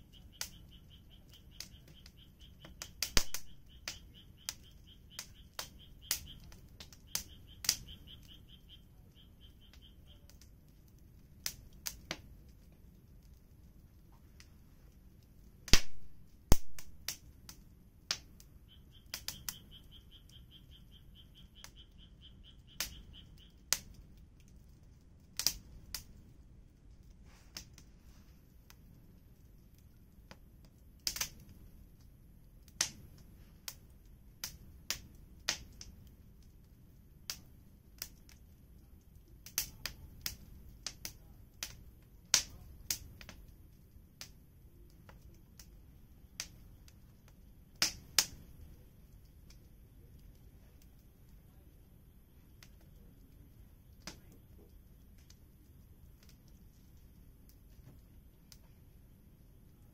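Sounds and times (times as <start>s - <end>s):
faint rapid chirping: 0.0s - 15.5s, 18.4s - 24.9s, 48.3s - 56.9s
low rumble of flame: 0.0s - 59.9s
wood fire crackling: 0.0s - 59.9s.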